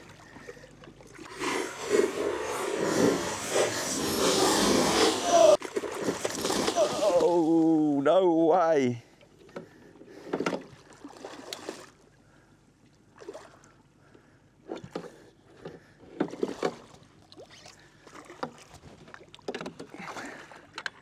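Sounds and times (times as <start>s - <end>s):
fish thrashing and splashing: 5.5s - 7.6s.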